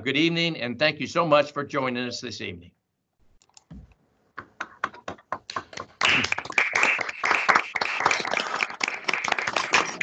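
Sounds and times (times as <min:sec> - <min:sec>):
people clapping: 0:04.4 - 0:10.0.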